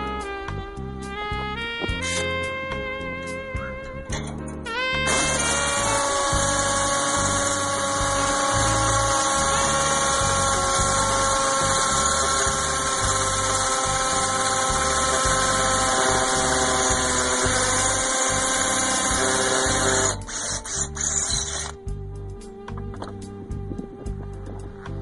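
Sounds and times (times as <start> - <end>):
electric drill drilling sheet metal: 5.1 - 21.8.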